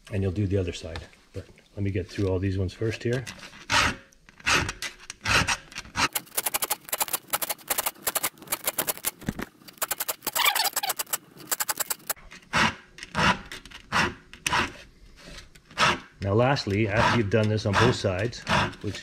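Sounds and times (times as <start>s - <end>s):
file rasping on saw chain: 3.4s - 8.2s, 9.9s - 14.8s, 16.8s - 19.0s.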